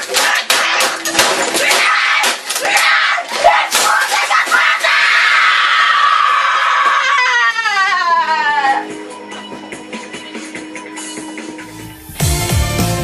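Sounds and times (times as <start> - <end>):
objects banging and crashing: 0.0 - 4.9
boy screaming in rage: 1.6 - 8.8.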